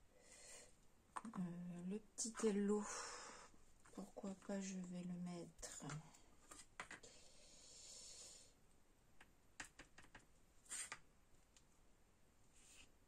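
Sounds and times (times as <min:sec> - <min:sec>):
light clicks and taps: 0:05.6 - 0:07.0.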